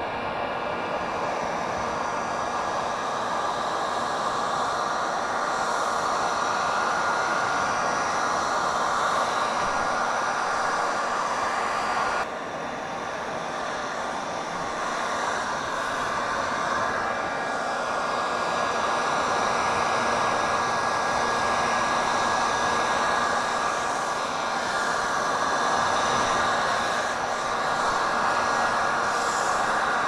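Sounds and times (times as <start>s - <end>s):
heat gun blowing air: 1.2s - 12.3s, 13.5s - 30.0s.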